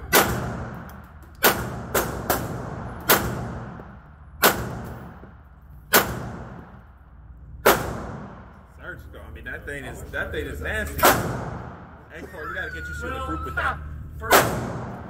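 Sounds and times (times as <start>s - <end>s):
gunshots with echo: 0.0s - 5.3s, 5.9s - 6.8s, 7.6s - 8.6s, 14.3s - 15.0s.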